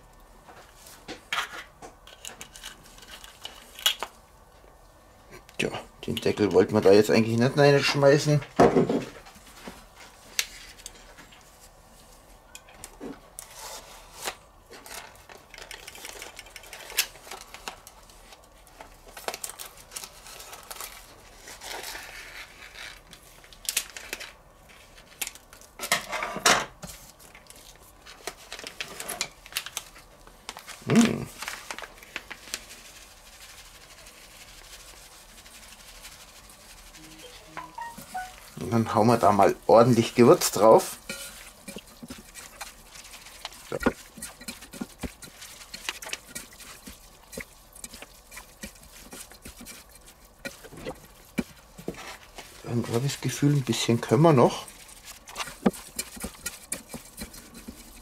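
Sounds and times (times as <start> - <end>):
plastic bag rustling: 13.4 - 25.8, 27.0 - 58.0
spice shaken onto chicken: 31.2 - 58.0.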